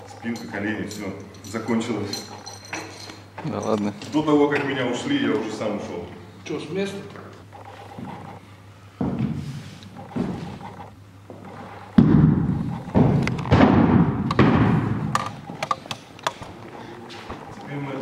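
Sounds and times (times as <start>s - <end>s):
feet thudding on wooden platform: 9.0s - 10.6s, 12.0s - 15.1s
shot hitting the floor: 12.0s - 15.1s.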